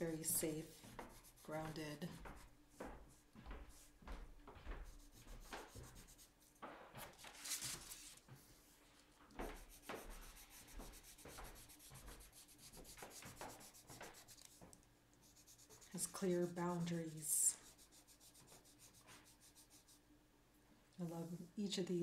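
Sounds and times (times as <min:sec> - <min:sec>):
coloured pencil scratching on paper: 0:00.0 - 0:02.4, 0:04.8 - 0:06.3, 0:09.4 - 0:20.0.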